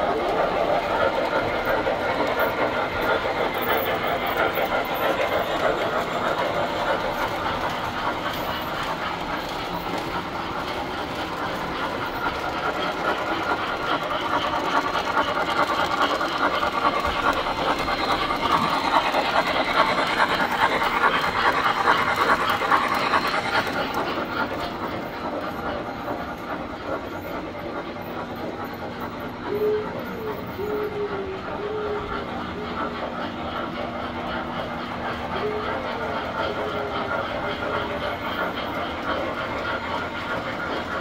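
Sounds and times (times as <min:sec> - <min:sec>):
model train wheels clattering: 0:00.0 - 0:41.0.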